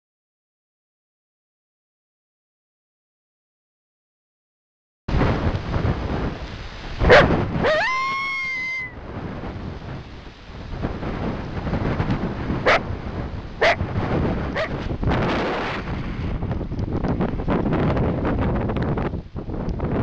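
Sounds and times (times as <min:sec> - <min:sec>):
wind on microphone: 0:05.1 - 0:20.0
coyote barking: 0:07.0 - 0:08.9, 0:12.6 - 0:12.9, 0:13.6 - 0:13.8, 0:14.5 - 0:14.8
coyote whining: 0:07.1 - 0:09.0.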